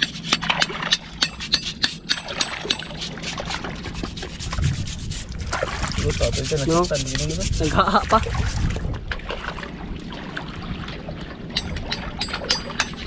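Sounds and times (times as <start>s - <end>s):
seashells being scraped: 0.0s - 5.4s, 6.0s - 7.8s.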